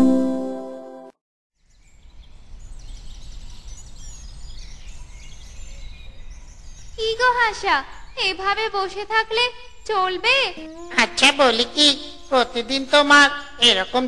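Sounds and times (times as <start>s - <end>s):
held musical chord: 0.0s - 1.1s, 10.6s - 13.6s
faint bird chirps: 1.6s - 14.0s.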